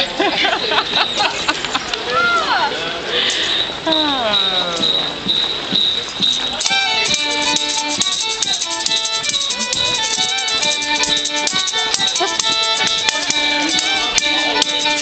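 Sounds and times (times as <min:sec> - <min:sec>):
fiddle playing dance tune: 0:03.8 - 0:15.0
tambourine beat: 0:04.8 - 0:15.0.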